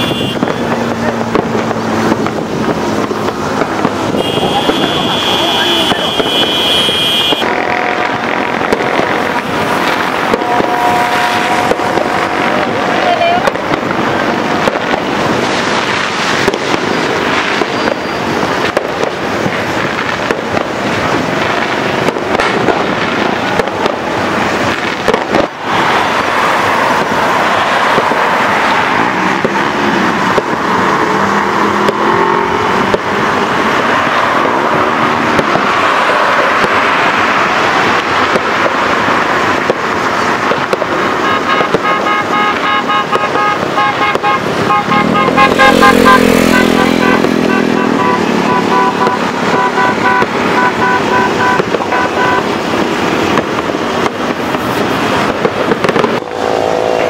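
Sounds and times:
vehicle horns tooting: 0.0s - 1.0s, 4.1s - 8.4s, 10.2s - 13.5s, 41.0s - 52.5s
fireworks and firecrackers banging: 0.0s - 57.0s
steady horn-like tone: 4.2s - 8.2s, 10.3s - 12.9s.

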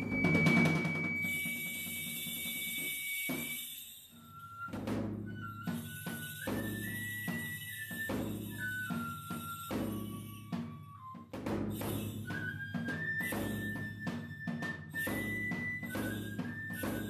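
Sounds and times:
high bamboo flute melody: 0.0s - 17.0s
irregular drum strokes: 0.0s - 17.0s
hand bells jingling: 1.2s - 4.8s, 5.4s - 11.0s, 11.6s - 13.9s, 15.0s - 17.0s.

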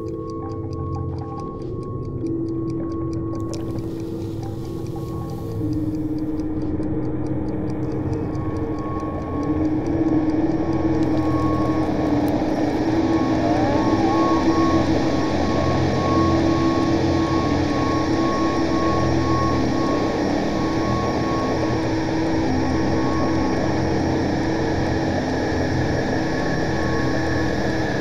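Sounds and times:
fast ticking: 0.0s - 19.6s
dark ambient drone: 0.0s - 28.0s.

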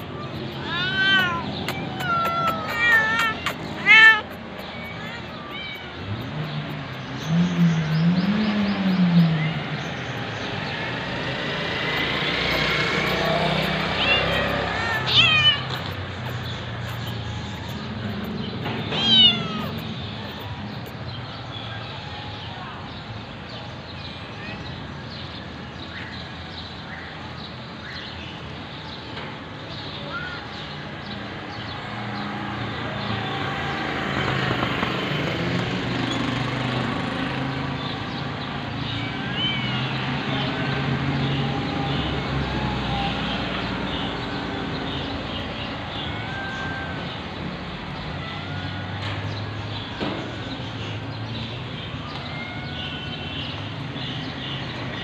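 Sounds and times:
bird chirps: 0.0s - 21.3s
passing motor traffic: 0.0s - 55.0s.

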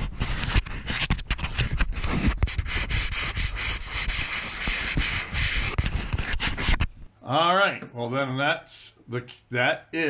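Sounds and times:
fingers scratching camera case: 0.0s - 6.9s.

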